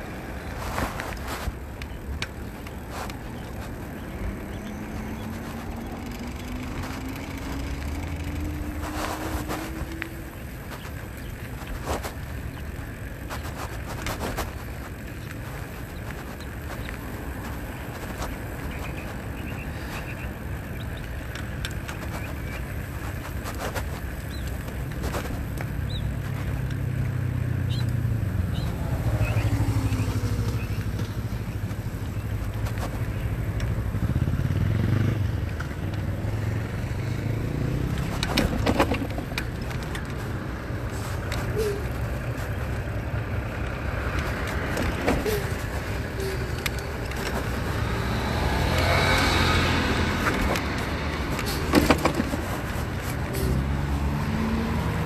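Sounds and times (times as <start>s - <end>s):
road traffic: 0.0s - 55.0s
truck passing close by: 25.0s - 55.0s.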